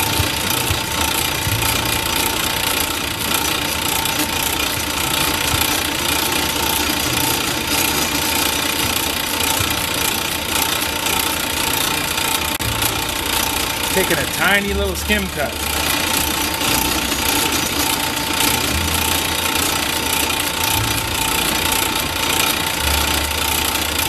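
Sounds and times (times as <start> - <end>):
metal lathe running: 0.0 - 24.0.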